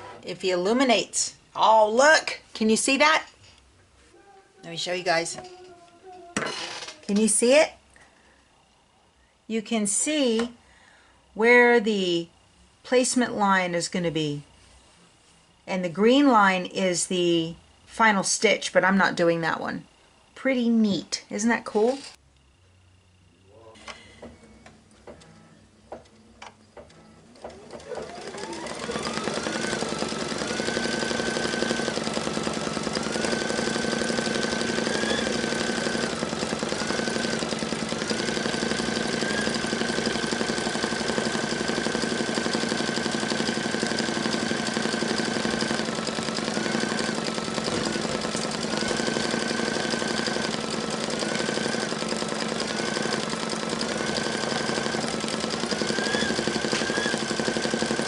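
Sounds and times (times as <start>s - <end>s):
embroidery machine motor whine: 26.9s - 58.0s.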